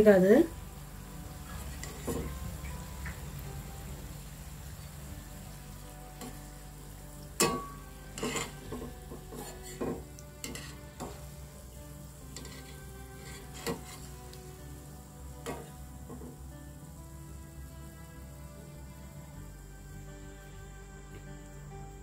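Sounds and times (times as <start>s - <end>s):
batter sizzling in hot oil: 0.0s - 22.0s
ladle knocking and scraping pan: 1.5s - 2.4s, 7.4s - 11.3s, 12.3s - 14.2s, 15.4s - 16.4s.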